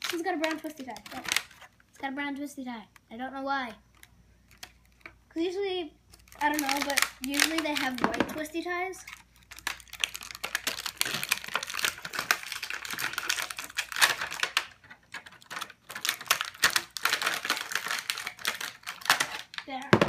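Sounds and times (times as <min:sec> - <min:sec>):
plastic packaging crackling: 0:00.0 - 0:02.0, 0:06.1 - 0:20.0.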